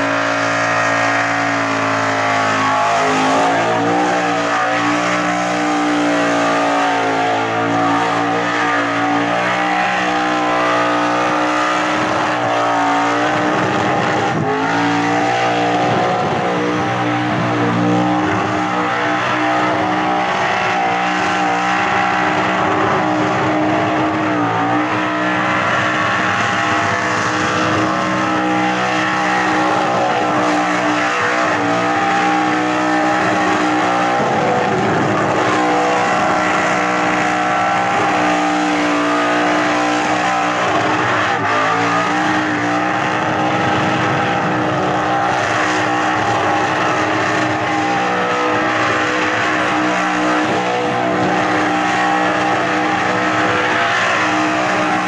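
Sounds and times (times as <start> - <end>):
car engine revving high: 0.0 - 55.0
tyres squealing: 0.0 - 55.0.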